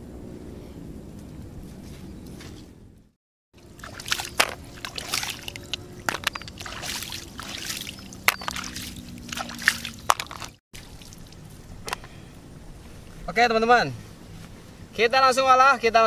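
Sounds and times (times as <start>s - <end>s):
water splashing and sloshing: 3.6s - 13.2s.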